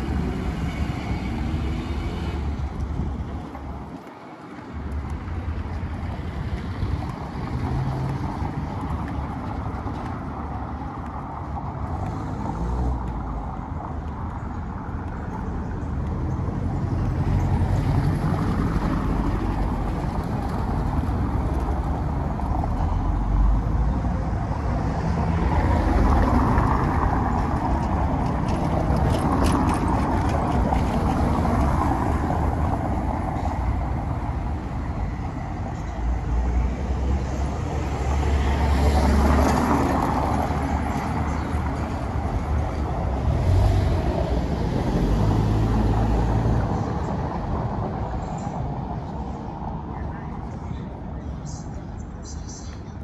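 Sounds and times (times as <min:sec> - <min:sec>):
cars rumbling over cobblestones: 0:00.0 - 0:53.0.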